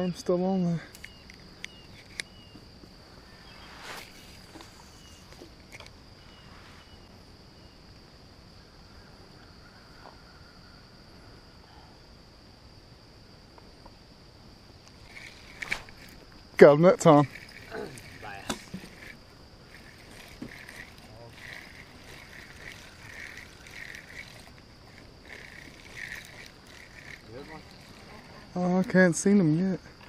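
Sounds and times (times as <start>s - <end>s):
high-pitched insect drone: 0.0s - 30.0s.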